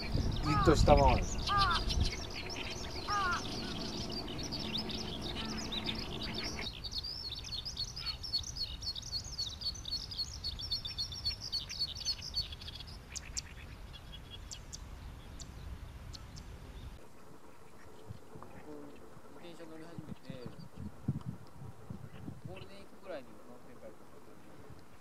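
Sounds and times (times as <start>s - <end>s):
short low bird call: 0.0s - 4.0s
skylark warbling song: 0.0s - 12.6s
faint bird chirps: 0.0s - 25.0s.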